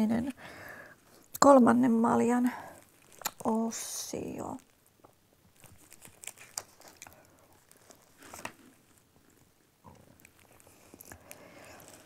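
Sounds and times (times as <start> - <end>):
soft rustles: 5.4 - 12.0.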